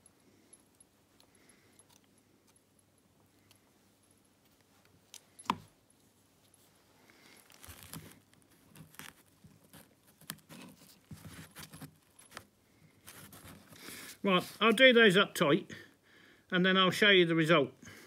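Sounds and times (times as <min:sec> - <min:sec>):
small metallic clinks: 0:00.0 - 0:06.6
string rustling: 0:00.6 - 0:14.9.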